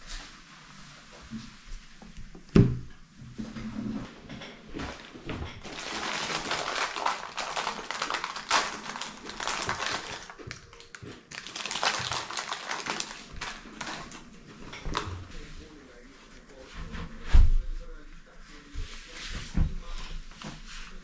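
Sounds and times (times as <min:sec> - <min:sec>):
plastic snack bag crinkling: 0:04.8 - 0:15.1.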